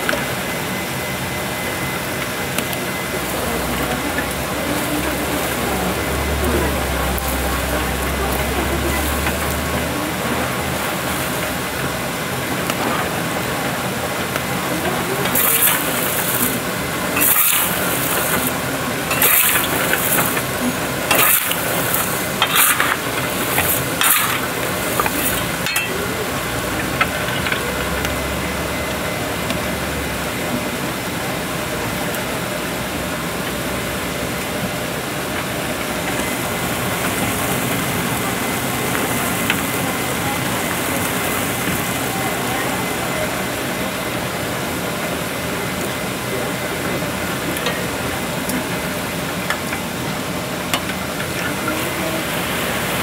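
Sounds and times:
chestnuts and pebbles stirred in pan: 2.2s - 29.6s.

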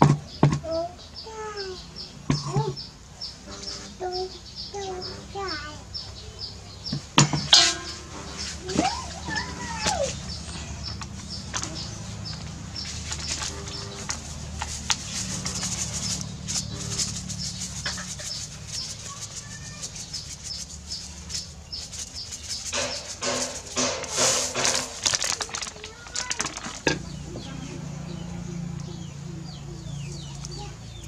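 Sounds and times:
low background hum: 0.2s - 24.1s
bird calling: 0.6s - 31.0s
seasoning shaken into bowl: 11.7s - 27.1s.

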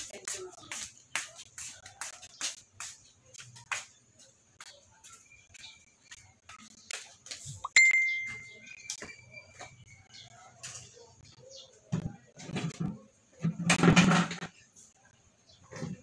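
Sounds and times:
sharp ringing ding: 7.7s - 8.7s.

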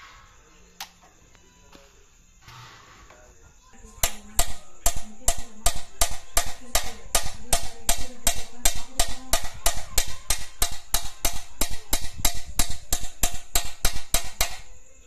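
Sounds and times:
metal tapping sheet glass: 4.0s - 14.7s.

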